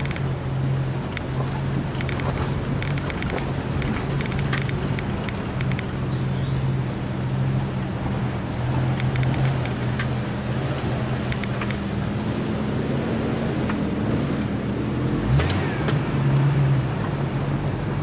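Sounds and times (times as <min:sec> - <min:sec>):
clicks and rattles: 0:00.0 - 0:00.4, 0:01.0 - 0:06.0, 0:07.6 - 0:12.1
car engine running: 0:00.0 - 0:18.0.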